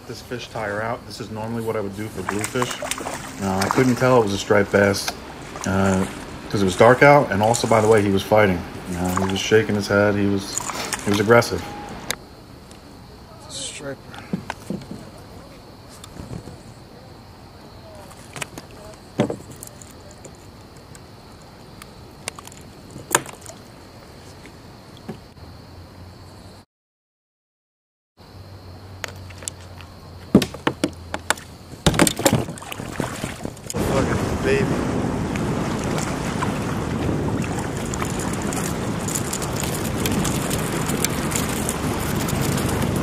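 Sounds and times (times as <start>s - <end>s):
steady hiss: 0.0s - 22.9s, 33.7s - 43.0s
water slapping against hull: 1.8s - 12.2s, 30.4s - 43.0s
small sharp clicks and splashes: 2.1s - 6.4s, 8.9s - 9.6s, 10.5s - 11.4s, 21.8s - 23.7s, 30.9s - 33.8s, 37.4s - 43.0s
kayak handling clicks and knocks: 14.1s - 15.2s, 15.9s - 16.7s, 18.0s - 21.1s, 21.8s - 23.6s, 29.0s - 33.8s
wind buffeting microphone: 32.0s - 43.0s.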